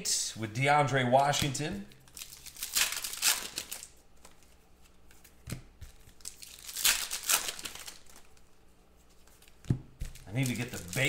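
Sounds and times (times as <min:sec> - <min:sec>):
cards rustling and scraping: 0:02.2 - 0:11.0.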